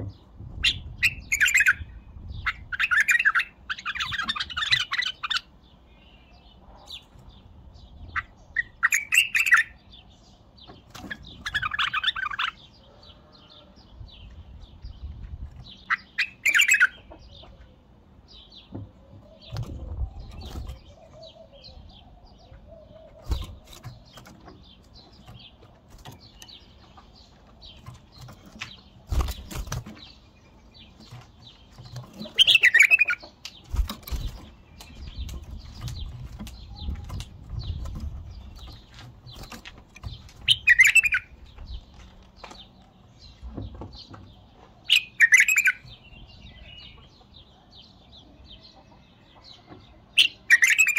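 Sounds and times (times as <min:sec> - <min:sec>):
wings flapping: 0:28.3 - 0:30.0.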